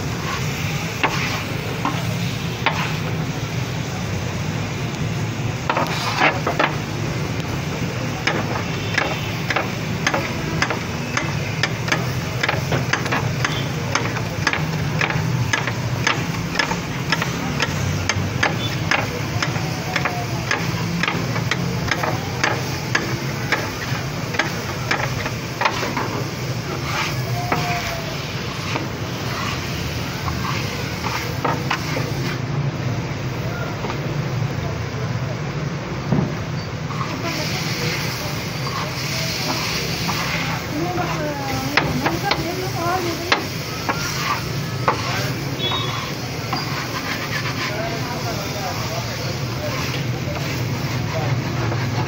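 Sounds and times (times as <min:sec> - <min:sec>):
metal scraper clacking on griddle: 0:05.7 - 0:06.8, 0:08.2 - 0:26.2.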